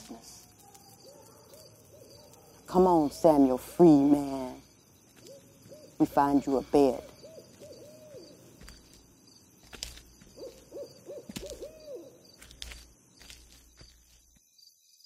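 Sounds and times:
owl hooting: 5.2s - 8.6s, 10.3s - 12.3s.

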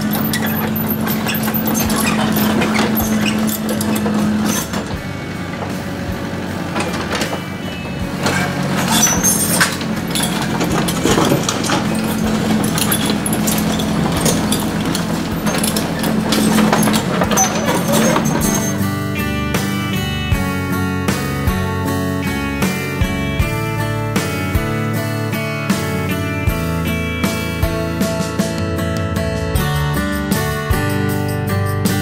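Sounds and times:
clanks and knocks of tracks: 0.0s - 31.1s
excavator engine running: 0.0s - 32.0s.

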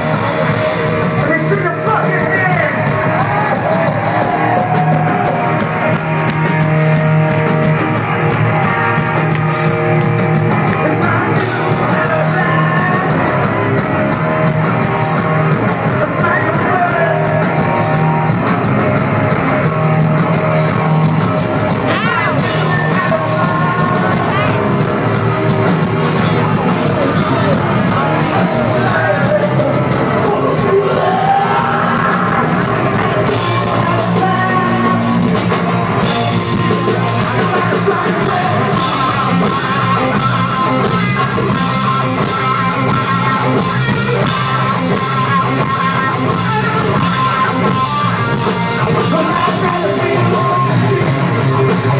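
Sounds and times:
heavy rock band playing: 0.0s - 51.9s
person singing: 10.7s - 13.6s, 21.7s - 24.8s, 26.0s - 35.8s, 36.4s - 41.5s, 43.3s - 51.9s.

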